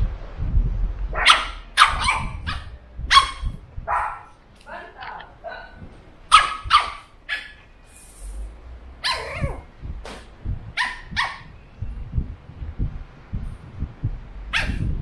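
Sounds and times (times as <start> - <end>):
puppy barking: 1.1 - 4.8, 5.4 - 7.7, 9.0 - 9.7, 10.8 - 11.5, 14.5 - 14.9
soft low knocks: 9.3 - 15.0.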